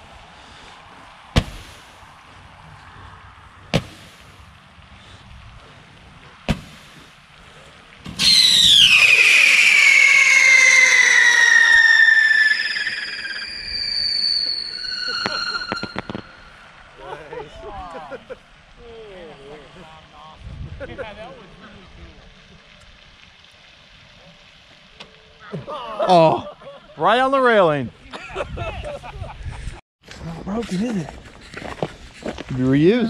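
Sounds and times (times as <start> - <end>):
firework reports: 8.0 - 22.4
firework whistle falling in pitch: 8.2 - 16.7.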